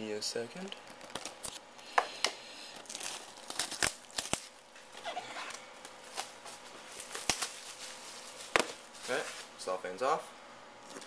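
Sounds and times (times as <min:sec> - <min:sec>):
cellophane crinkling and tearing: 0:00.6 - 0:01.7, 0:02.7 - 0:09.6
knife cutting cellophane: 0:02.8 - 0:05.6.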